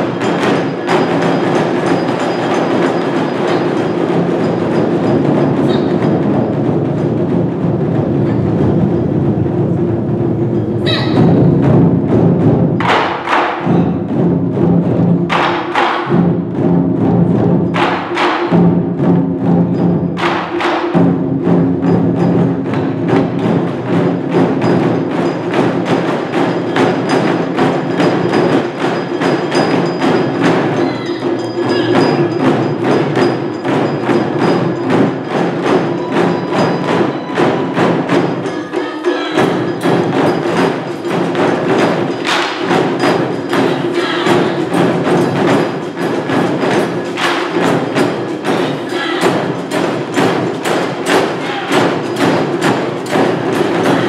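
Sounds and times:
taiko drums: 0.0 - 54.0.

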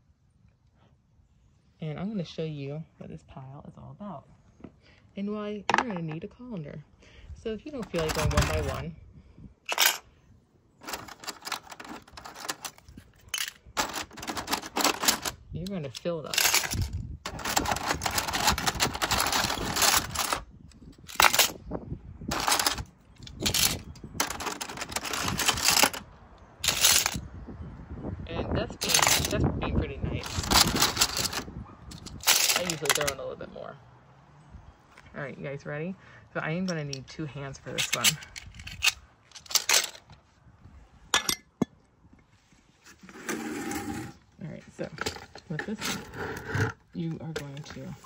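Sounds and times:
shells clattering in plastic bin: 7.8 - 8.8, 9.7 - 10.0, 10.8 - 20.4, 21.0 - 21.6, 22.3 - 26.0, 26.6 - 27.2, 28.8 - 29.4, 30.2 - 33.2, 37.7 - 40.1.

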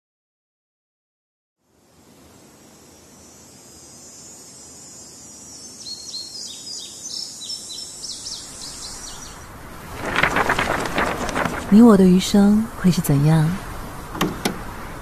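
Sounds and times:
insect drone: 1.6 - 11.8
bird chirping: 4.3 - 9.5.

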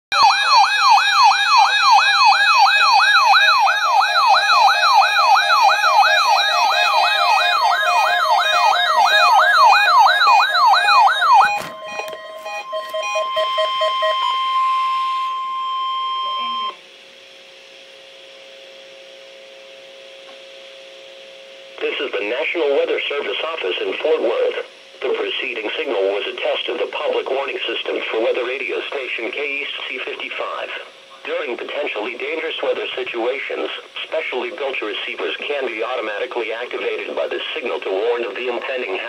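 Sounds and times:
warbling siren: 0.1 - 16.8
weather radio alarm tone: 0.1 - 16.8
quick beeps: 10.7 - 16.8
faint hum and hiss: 13.9 - 39.0.

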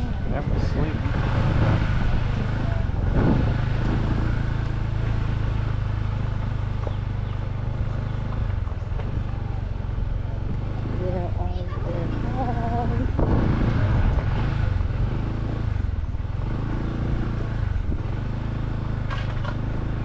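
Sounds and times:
motorcycle engine running: 0.0 - 20.0
road and wind noise: 0.0 - 20.0.

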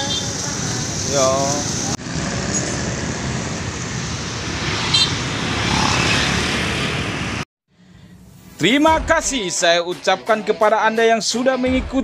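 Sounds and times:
motor scooters passing: 0.0 - 7.4.

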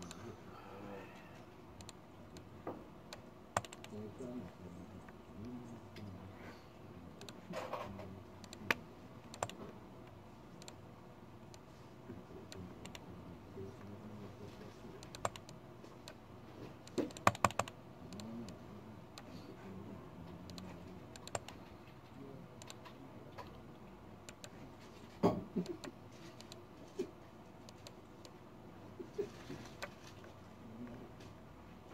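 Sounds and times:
typing on computer keyboard: 3.6 - 4.0, 7.2 - 9.6, 15.0 - 16.2, 16.8 - 18.3, 20.5 - 21.6.

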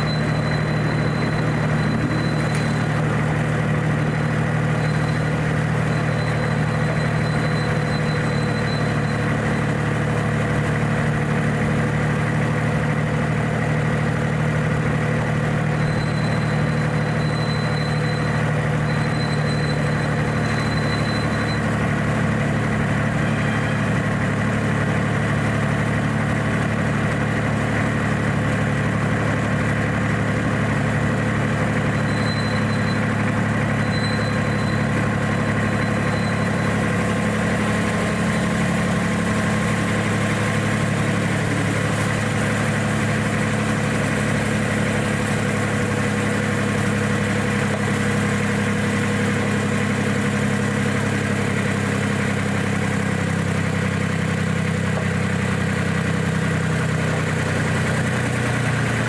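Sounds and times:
diesel locomotive engine running: 0.0 - 59.0.

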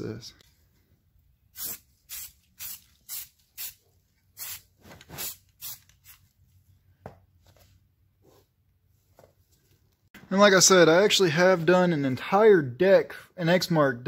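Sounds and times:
spray paint can hissing: 1.6 - 3.8, 4.4 - 6.2.

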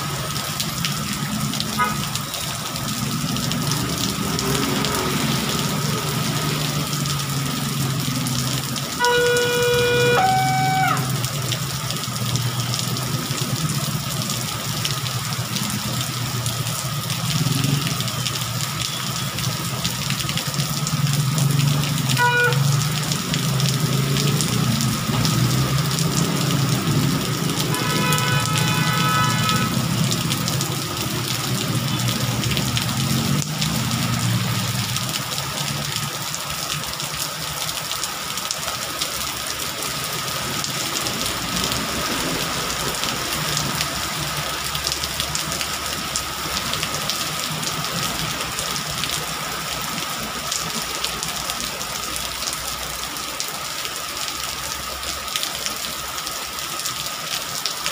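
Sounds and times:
traffic running: 0.0 - 57.2
heavy rain pouring: 0.0 - 57.9
vehicle horns honking: 1.8 - 2.0, 9.0 - 11.2, 22.2 - 22.8, 27.6 - 30.0.

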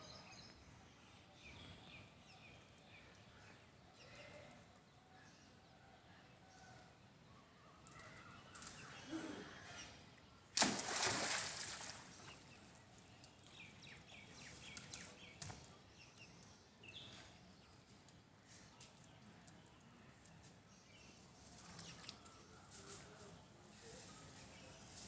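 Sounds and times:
monkey splashing in water: 10.6 - 12.5.

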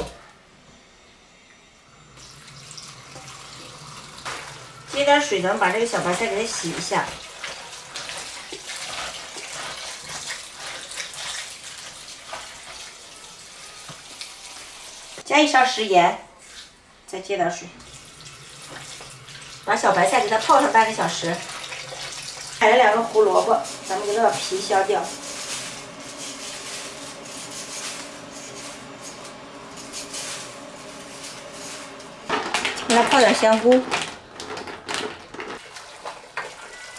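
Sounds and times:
tap water running into basin: 2.2 - 15.2, 17.8 - 32.3, 35.6 - 36.9.

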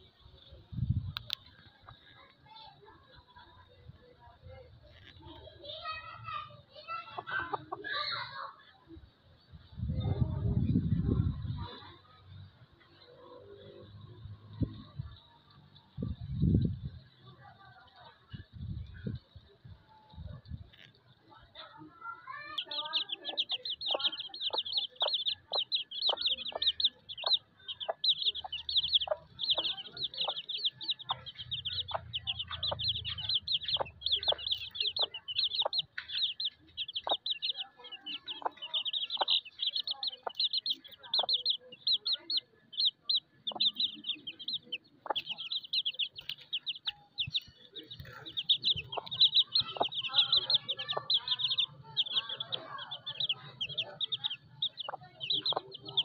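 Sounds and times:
chicks peeping: 22.1 - 56.0
hen clucking: 22.5 - 56.0.

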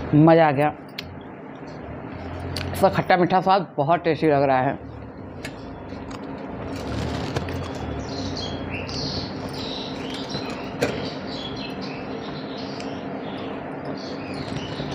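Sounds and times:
steady low hum: 0.0 - 14.9
small birds chirping: 7.0 - 14.9.

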